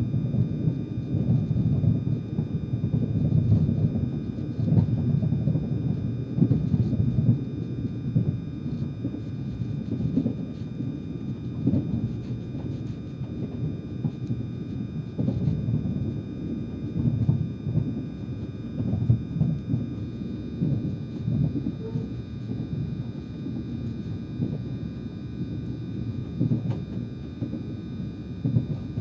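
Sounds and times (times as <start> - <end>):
train rumbling on rails: 20.6 - 23.3.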